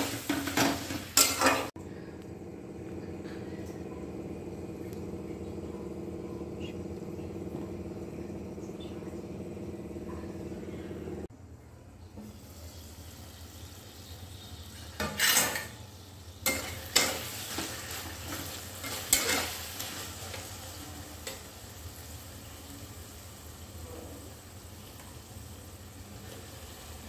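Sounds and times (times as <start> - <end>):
metal spatula scraping a pan: 0.0 - 1.7, 14.9 - 15.8, 16.4 - 20.5
onions sizzling in oil: 0.0 - 1.7, 12.2 - 27.0
low steady hum: 1.2 - 12.3.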